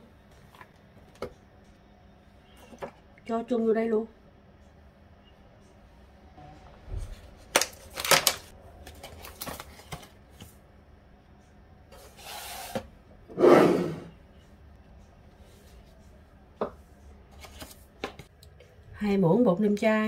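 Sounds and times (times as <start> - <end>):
plastic packet clicks and rustles: 7.5 - 10.2.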